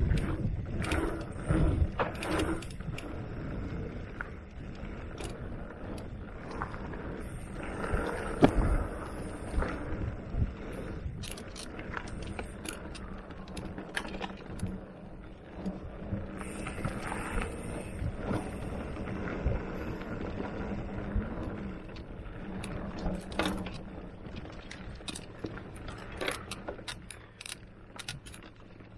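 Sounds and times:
bike chain rattling: 0:00.0 - 0:28.9
mountain bike tyres on dirt: 0:00.0 - 0:28.9
bike knocking over bumps: 0:08.2 - 0:09.1.

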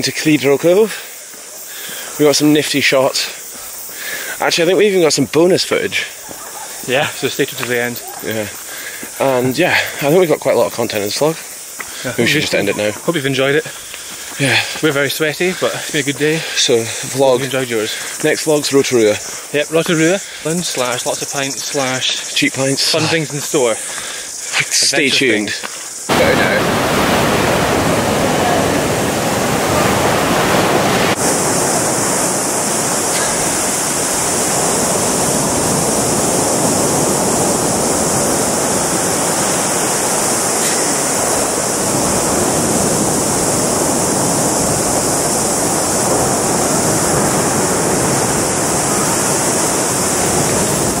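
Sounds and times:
waves breaking on beach: 0:00.0 - 0:51.0.

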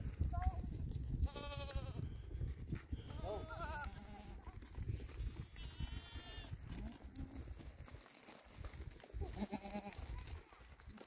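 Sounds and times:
goat bleating: 0:01.2 - 0:02.1, 0:02.9 - 0:04.5, 0:05.4 - 0:07.4, 0:09.2 - 0:10.3.

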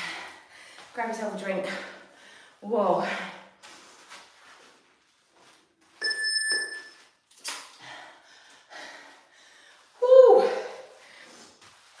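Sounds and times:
electronic timer beep: 0:06.0 - 0:07.1
soft breaths: 0:07.8 - 0:10.0.

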